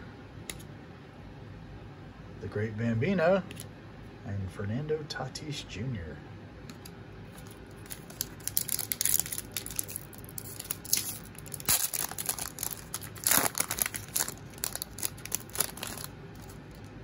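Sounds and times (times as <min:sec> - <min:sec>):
foil wrapper crinkling and tearing: 0:07.3 - 0:16.9.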